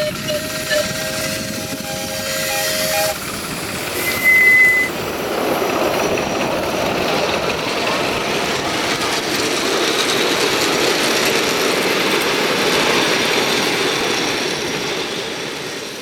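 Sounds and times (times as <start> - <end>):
miniature train wheels clattering on rails: 5.4 - 16.0.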